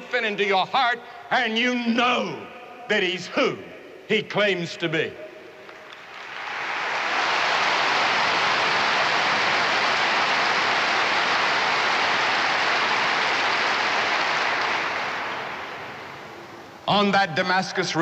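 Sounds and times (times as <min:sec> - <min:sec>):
large crowd applauding: 0:05.7 - 0:16.4.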